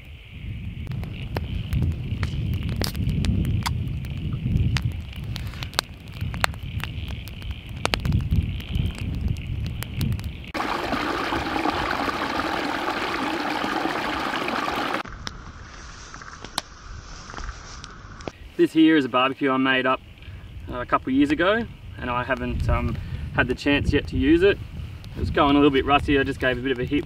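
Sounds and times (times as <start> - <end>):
wind buffeting microphone: 0.0 - 15.3, 20.1 - 27.0
campfire crackling: 0.8 - 18.7, 19.6 - 27.0
creek running water: 10.6 - 15.0.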